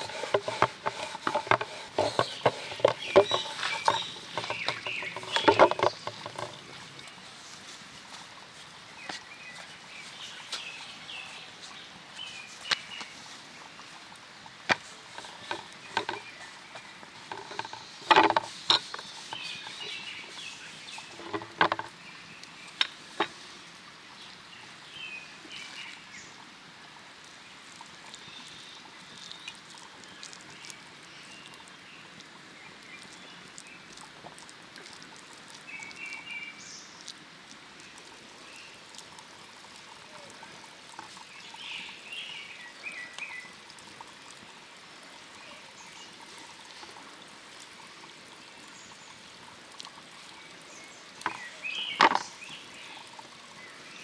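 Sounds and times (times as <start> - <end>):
birds chirping: 0.0 - 7.5, 8.6 - 26.4, 35.6 - 37.1, 37.8 - 44.5, 50.3 - 54.0
running water: 0.0 - 54.0.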